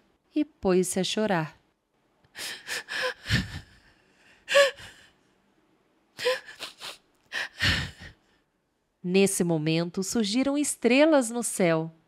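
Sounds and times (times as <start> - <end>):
woman sobbing and whimpering: 2.4 - 5.2, 6.1 - 8.2.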